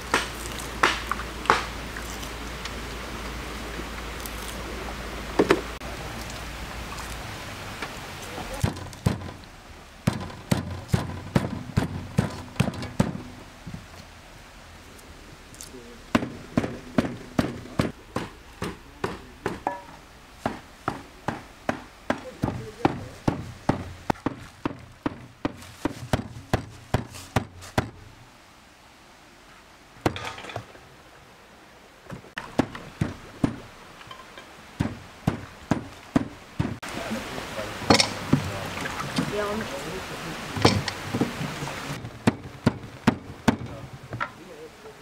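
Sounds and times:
steady hiss: 0.0s - 45.0s
hatchet chopping meat on wood: 16.1s - 19.6s, 20.5s - 28.0s, 34.8s - 36.8s.

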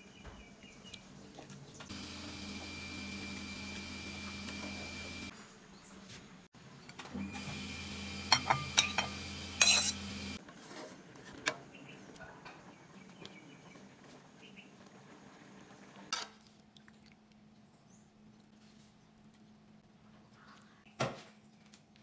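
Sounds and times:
utensils clinking against cookware: 8.3s - 10.2s.

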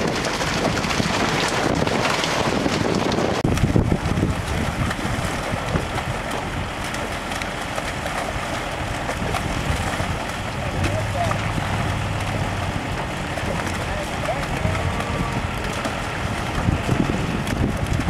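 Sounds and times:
water gushing and splashing: 0.0s - 18.0s
wind buffeting microphone: 0.0s - 18.0s.

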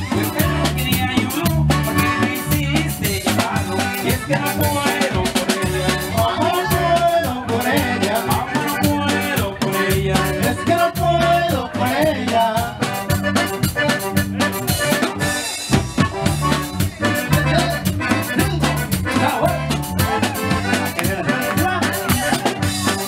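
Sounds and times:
bouncing bass line: 0.0s - 23.0s
drum kit beat: 0.0s - 23.0s
guitar: 0.0s - 23.0s
live band dance music: 0.0s - 23.0s.

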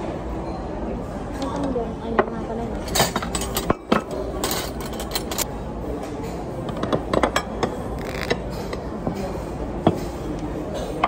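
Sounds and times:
ceramic plates clinking: 2.8s - 5.5s.

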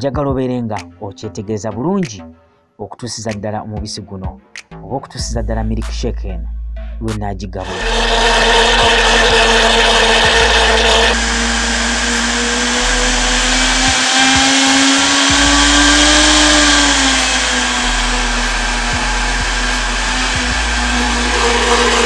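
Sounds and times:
blender running: 7.6s - 22.0s.

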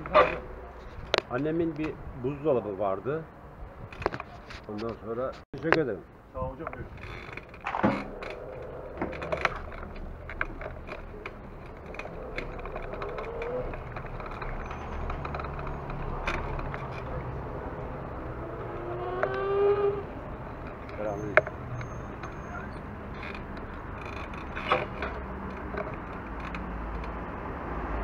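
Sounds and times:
traffic rumble: 0.0s - 28.0s
clicks and rattles: 6.6s - 18.3s, 20.2s - 27.5s.

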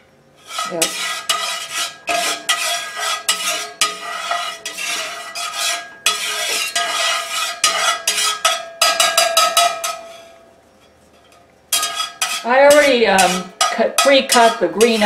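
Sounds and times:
metal spatula scraping skillet: 0.4s - 15.0s.

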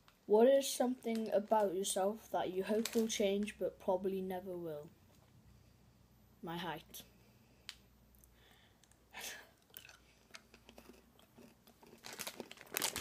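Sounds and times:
soft breath: 7.0s - 10.3s.

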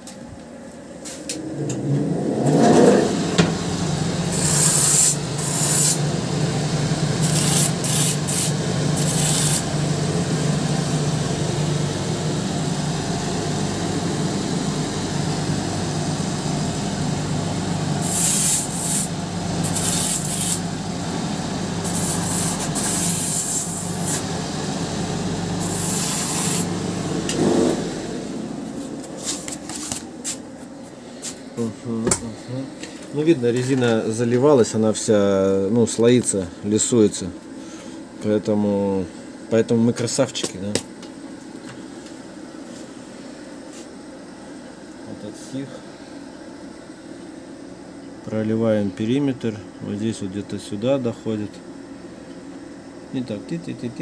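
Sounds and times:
abrasive wheels spinning: 1.4s - 3.7s.

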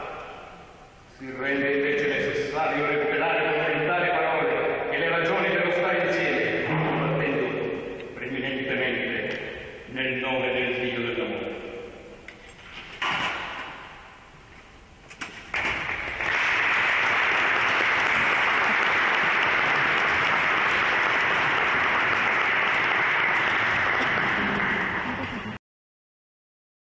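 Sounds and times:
audience applauding: 15.5s - 25.6s.

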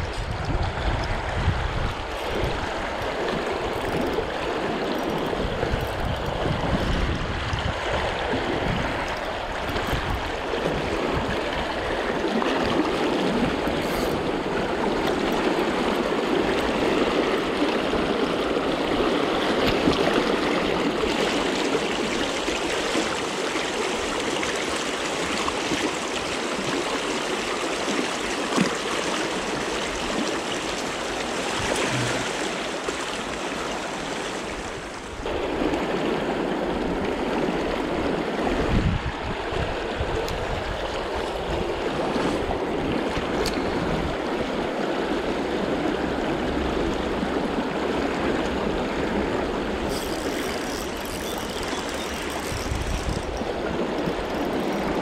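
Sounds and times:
river current rushing and splashing: 0.0s - 55.0s.

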